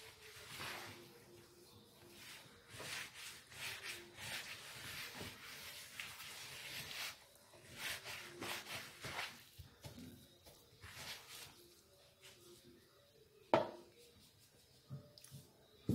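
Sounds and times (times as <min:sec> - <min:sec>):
hand kneading crumbly dough: 0:00.0 - 0:13.2.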